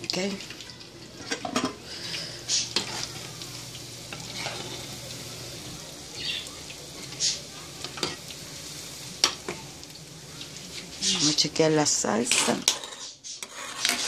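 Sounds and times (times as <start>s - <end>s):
chicken deep-frying sizzle: 0.0s - 14.0s
slotted spoon scraping pot: 12.2s - 14.0s.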